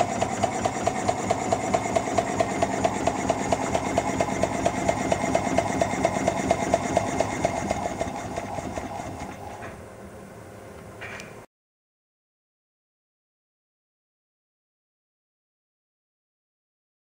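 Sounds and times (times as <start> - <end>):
model steam engine beating: 0.0 - 9.7.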